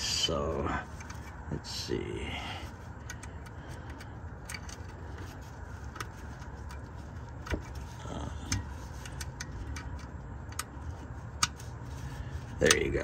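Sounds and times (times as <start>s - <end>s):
steady low rumble: 0.0s - 13.0s
small clicks and taps on plastic: 3.0s - 11.7s.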